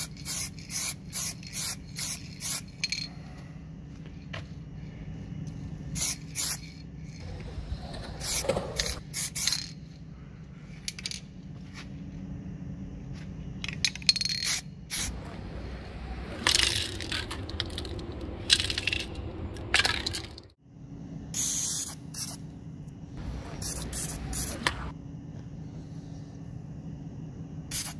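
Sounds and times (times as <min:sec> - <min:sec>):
metallic clinks and scrapes: 0:00.1 - 0:03.2
low steady hum: 0:09.6 - 0:21.4.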